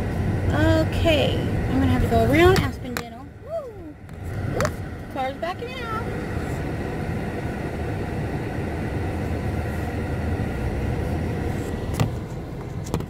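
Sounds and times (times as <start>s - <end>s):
car cabin engine and road rumble: 0.0s - 13.0s.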